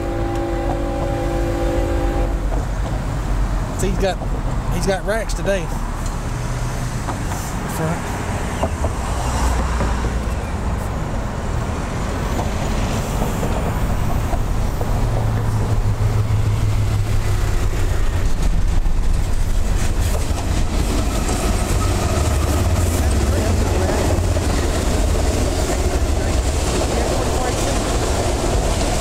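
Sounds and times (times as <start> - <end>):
diesel locomotive engine drone: 0.0 - 29.0.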